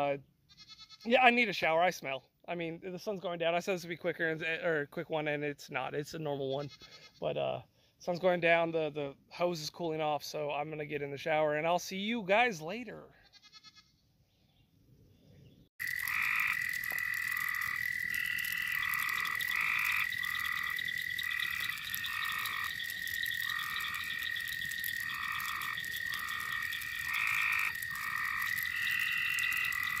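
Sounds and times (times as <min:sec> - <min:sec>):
frog calls: 0:15.8 - 0:30.0
frogs trilling: 0:15.8 - 0:30.0.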